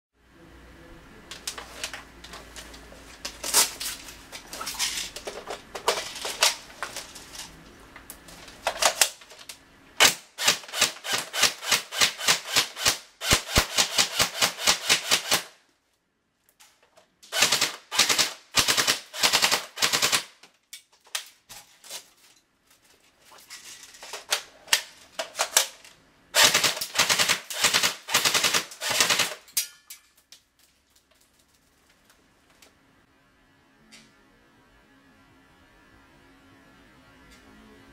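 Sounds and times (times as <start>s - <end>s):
airsoft gun firing: 10.0s - 15.6s, 17.3s - 20.4s, 26.4s - 29.4s.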